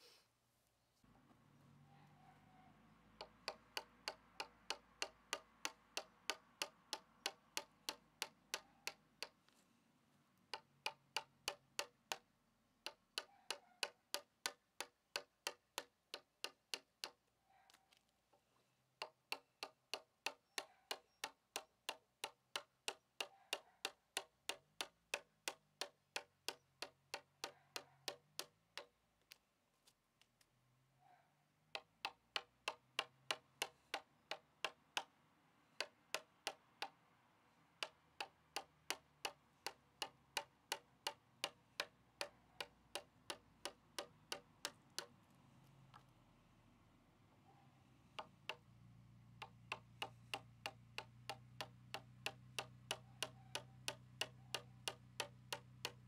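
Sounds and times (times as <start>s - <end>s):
hand tool striking log: 3.2s - 9.4s, 10.5s - 17.2s, 19.0s - 29.0s, 31.7s - 35.1s, 35.8s - 37.0s, 37.8s - 45.2s, 48.2s - 48.6s, 49.4s - 56.0s.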